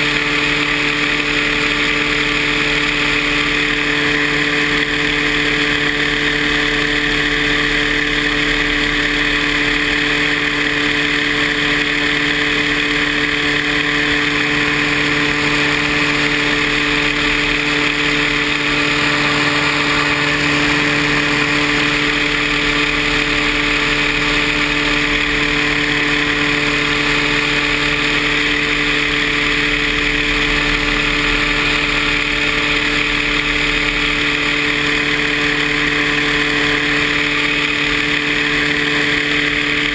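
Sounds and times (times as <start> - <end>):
paramotor engine droning: 0.0 - 39.9.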